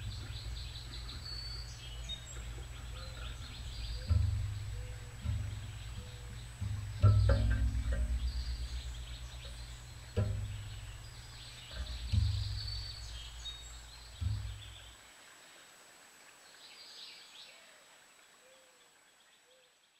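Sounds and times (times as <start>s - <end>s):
low rumble: 0.0s - 14.8s
sudden thumps: 0.0s - 14.9s
songbirds chirping: 0.0s - 19.9s.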